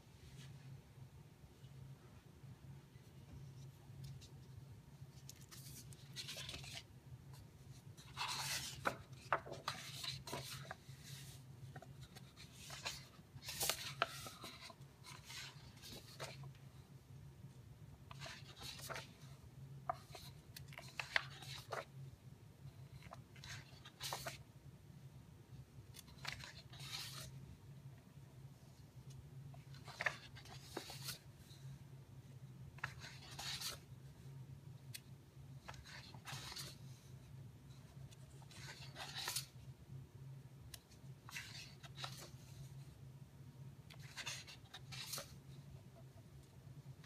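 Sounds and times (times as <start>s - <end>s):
faint steady hum: 0.0s - 47.0s
book pages turning: 5.1s - 16.6s, 18.1s - 21.9s, 22.8s - 24.4s, 25.9s - 27.4s, 29.0s - 31.6s, 32.8s - 33.9s, 34.9s - 37.2s, 38.0s - 39.6s, 40.8s - 42.7s, 43.9s - 45.6s.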